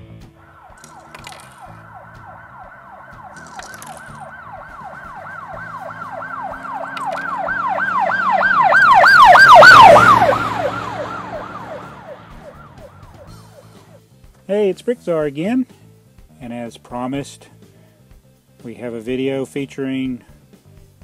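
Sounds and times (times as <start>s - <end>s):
police siren yelping: 0.4s - 13.9s.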